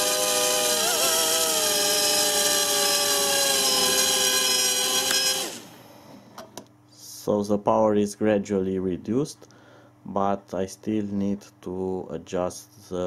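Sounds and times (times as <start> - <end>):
quadcopter motors whining: 0.0 - 5.9.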